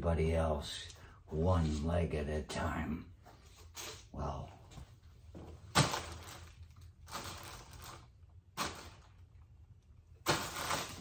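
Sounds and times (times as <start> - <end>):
rummaging rustling and knocking: 5.2 - 9.2, 10.2 - 11.0.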